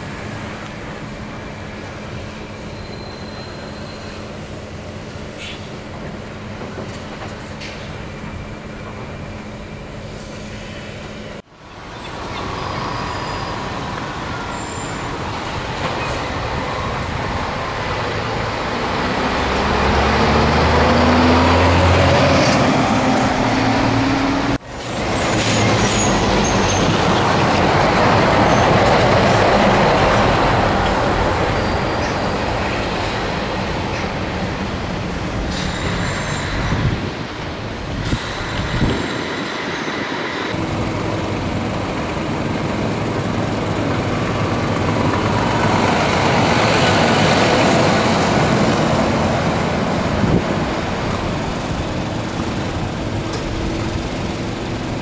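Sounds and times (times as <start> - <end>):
truck engine accelerating: 18.4 - 24.6.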